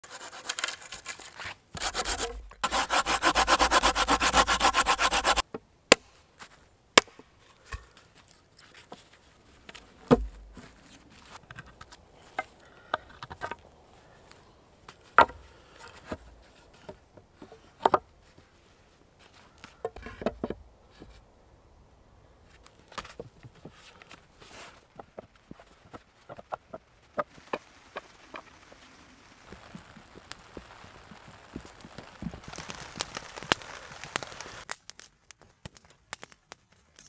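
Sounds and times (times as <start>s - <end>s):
hand saw cutting wood: 0.0s - 5.4s.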